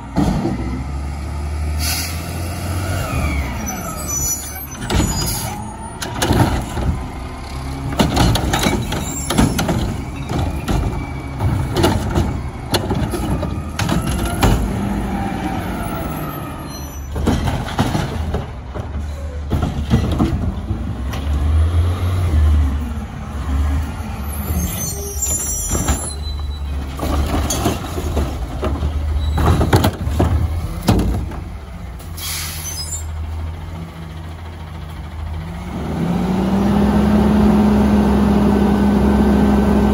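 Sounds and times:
diesel engine revving: 0:00.0 - 0:18.7, 0:20.5 - 0:25.6, 0:28.2 - 0:39.9
air brakes hissing: 0:01.8 - 0:02.3, 0:32.1 - 0:33.2
hydraulics whining: 0:01.8 - 0:39.9
carts clanking and banging: 0:03.7 - 0:15.2, 0:15.8 - 0:21.8, 0:24.3 - 0:33.2.

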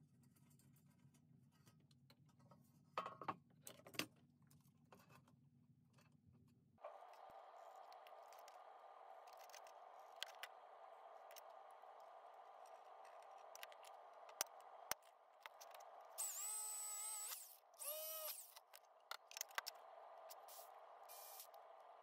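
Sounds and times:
cordless drill into sheet metal: 0:16.1 - 0:18.7, 0:20.3 - 0:21.6.

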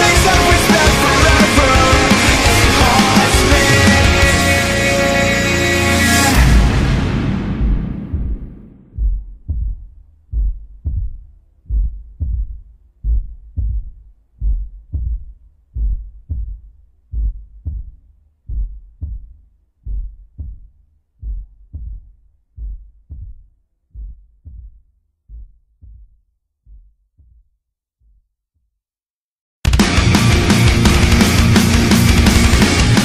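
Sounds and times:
loud music: 0:00.0 - 0:09.0, 0:29.7 - 0:33.0
heartbeat thumps: 0:06.4 - 0:28.3.

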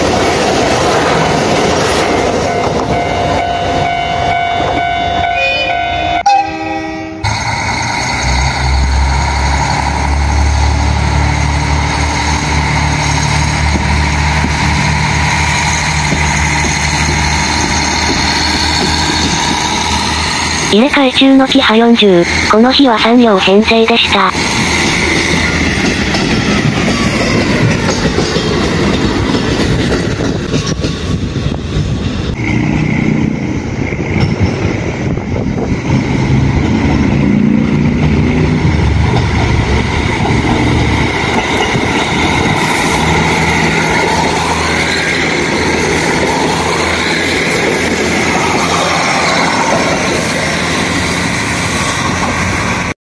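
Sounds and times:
diesel engines droning: 0:00.0 - 0:29.9, 0:31.1 - 0:53.0
high wheel squeal: 0:04.8 - 0:20.7, 0:41.4 - 0:52.8
train wheels clacking over rail joints: 0:07.7 - 0:20.7, 0:24.4 - 0:32.9, 0:33.9 - 0:52.9.

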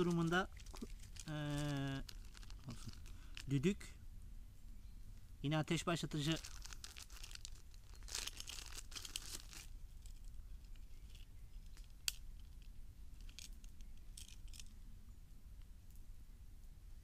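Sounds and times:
plastic rustling and crinkling: 0:00.0 - 0:03.8, 0:06.0 - 0:14.7.

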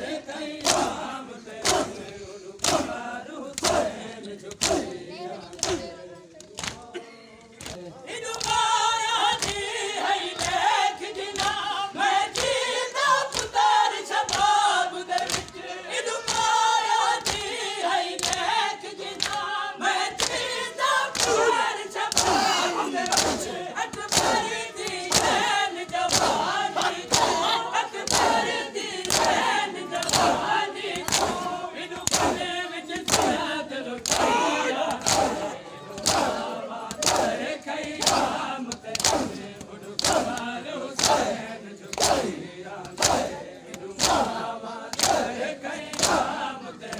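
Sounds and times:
men chanting a lament: 0:00.0 - 0:46.9
hands slapping chests: 0:00.6 - 0:01.0, 0:01.6 - 0:04.9, 0:05.5 - 0:08.6, 0:09.3 - 0:09.7, 0:10.4 - 0:10.6, 0:11.3 - 0:11.6, 0:12.3 - 0:12.6, 0:15.2 - 0:15.6, 0:17.2 - 0:17.5, 0:18.2 - 0:18.4, 0:19.1 - 0:19.4, 0:20.2 - 0:20.4, 0:21.1 - 0:33.4, 0:34.0 - 0:46.9.

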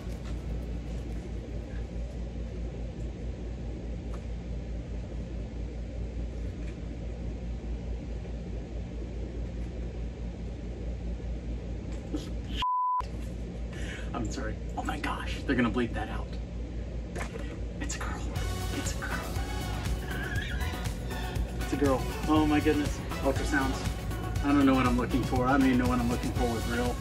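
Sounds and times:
low background hum: 0:00.0 - 0:27.0
censor bleep: 0:12.6 - 0:13.0.

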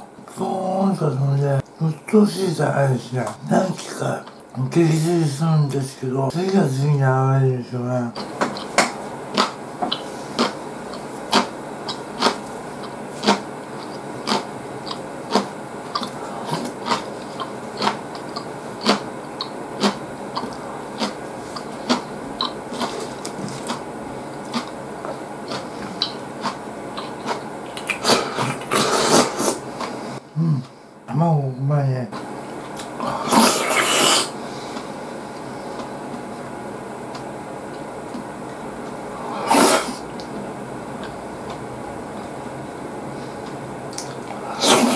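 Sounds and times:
wet chewing clicks: 0:08.2 - 0:28.8, 0:43.5 - 0:44.9
noodle slurping: 0:25.5 - 0:30.0, 0:33.0 - 0:34.4, 0:39.2 - 0:40.0, 0:44.3 - 0:44.9.

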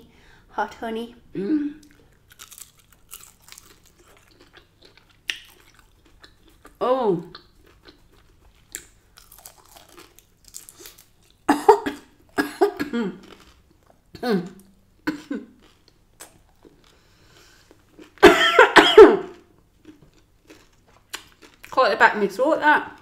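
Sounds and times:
faint chewing: 0:01.8 - 0:12.4, 0:13.1 - 0:18.2, 0:19.2 - 0:21.8
woman coughing: 0:11.5 - 0:13.2, 0:18.2 - 0:19.4.

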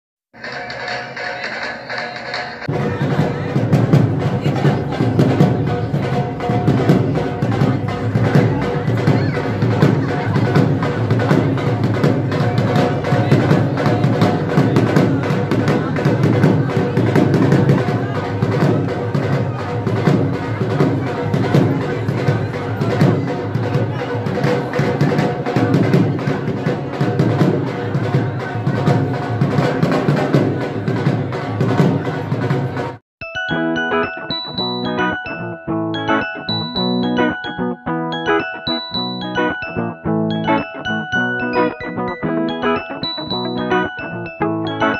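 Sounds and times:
barrel drum beat: 0:00.3 - 0:33.0
held melodic tone: 0:33.2 - 0:44.9.

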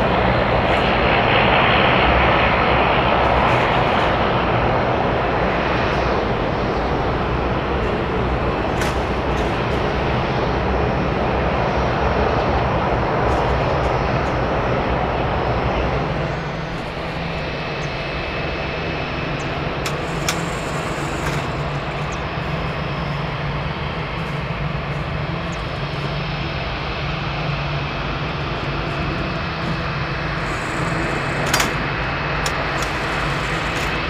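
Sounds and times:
airliner engines running: 0:00.0 - 0:34.0
thin high whine: 0:13.2 - 0:34.0.

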